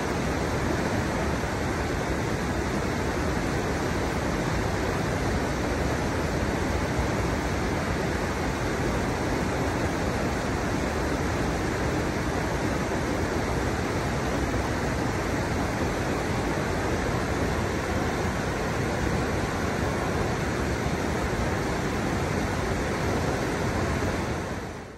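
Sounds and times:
river water rushing: 0:00.0 - 0:24.9.

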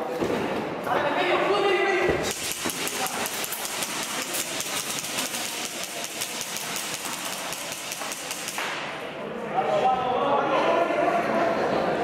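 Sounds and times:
airsoft rifle rapid shots: 0:02.2 - 0:08.9.

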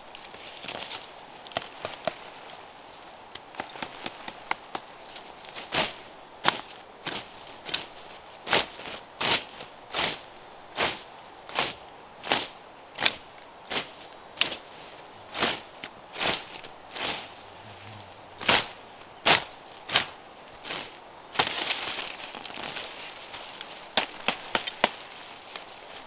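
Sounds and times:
vegetation rustling and snapping: 0:00.0 - 0:02.6, 0:03.3 - 0:09.5, 0:11.5 - 0:14.8, 0:18.4 - 0:26.0.

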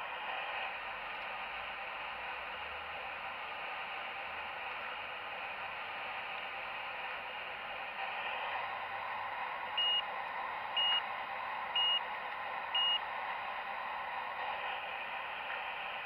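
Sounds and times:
short electronic beeps: 0:09.8 - 0:10.0, 0:10.8 - 0:11.0, 0:11.8 - 0:12.0, 0:12.8 - 0:13.0.

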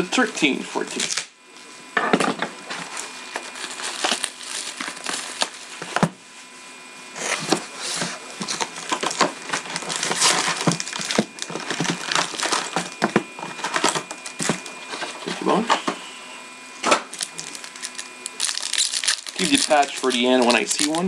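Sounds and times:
foil wrapper crinkling: 0:02.8 - 0:05.9, 0:07.2 - 0:14.7, 0:17.1 - 0:21.0
cardboard rustling: 0:02.8 - 0:06.1, 0:07.2 - 0:15.5.

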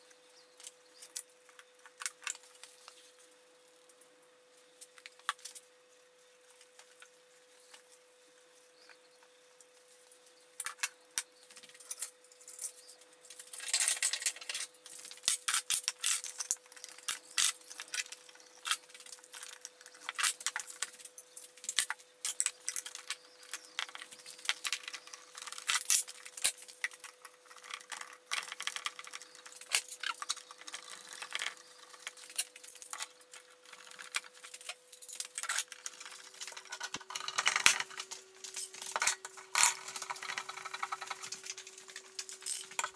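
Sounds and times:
metal clamps clinking and rattling: 0:34.0 - 0:42.9.

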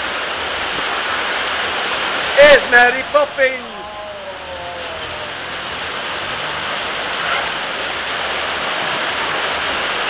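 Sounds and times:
heavy rain on street: 0:00.0 - 0:10.0
vehicle passing on wet road: 0:02.1 - 0:10.0.

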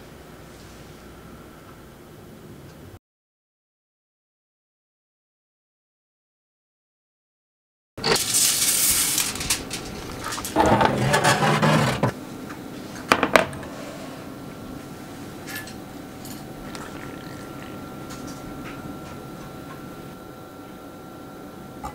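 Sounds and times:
utensils scraping a pan: 0:08.0 - 0:12.2
steady hum: 0:08.0 - 0:21.9.

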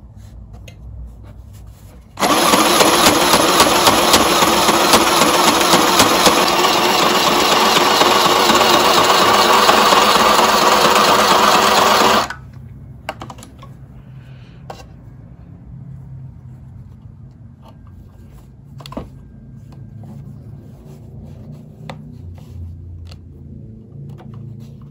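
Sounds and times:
electric sewing machine running: 0:02.2 - 0:12.4.

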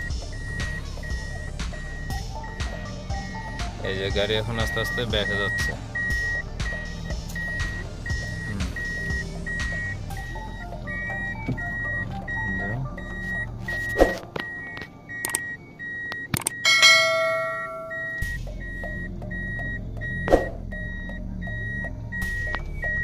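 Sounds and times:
reverse warning beeper: 0:00.0 - 0:23.0
loud ringing tone: 0:07.4 - 0:21.8.

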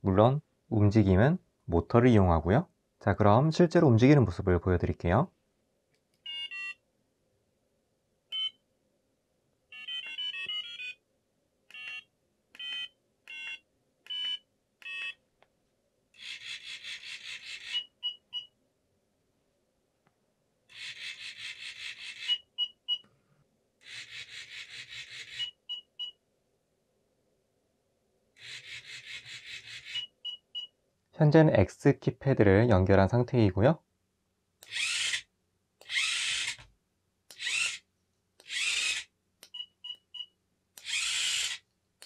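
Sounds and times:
buzzer beeps and tones: 0:09.8 - 0:11.0
small geared motors whirring: 0:20.7 - 0:22.4, 0:23.8 - 0:25.5, 0:28.4 - 0:30.1, 0:34.6 - 0:36.6, 0:37.3 - 0:37.8, 0:38.4 - 0:39.1, 0:40.8 - 0:41.6.

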